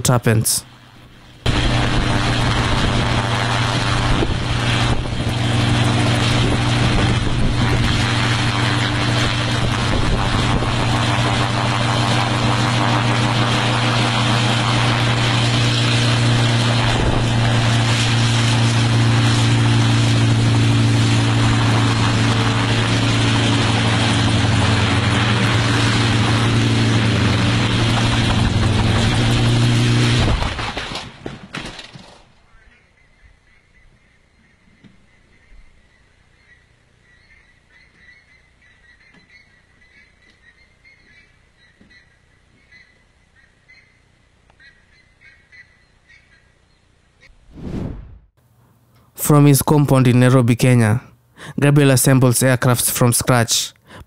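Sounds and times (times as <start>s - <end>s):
helicopter engine and rotor drone: 0.0s - 32.1s
helicopter crashing: 1.5s - 32.5s.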